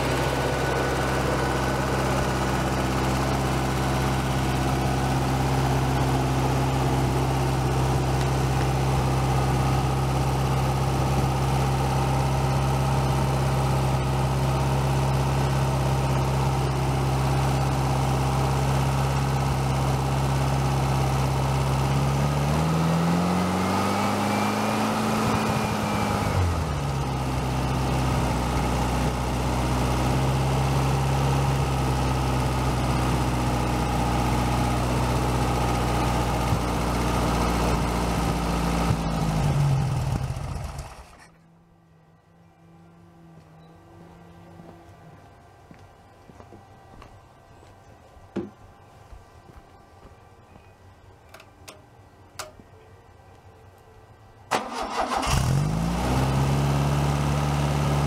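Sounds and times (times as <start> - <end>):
air-cooled engine idling and revving: 0.0 - 41.4, 54.5 - 58.0.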